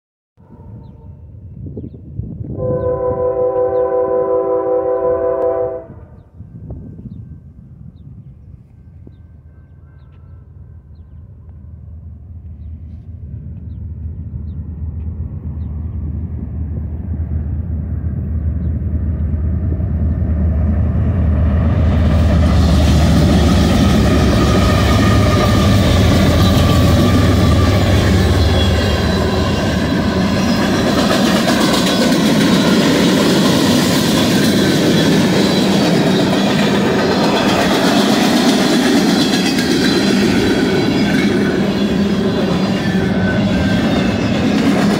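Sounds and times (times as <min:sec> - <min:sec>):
locomotive engine rumble: 0:00.7 - 0:44.9
train wheels rolling on rails: 0:16.9 - 0:44.9.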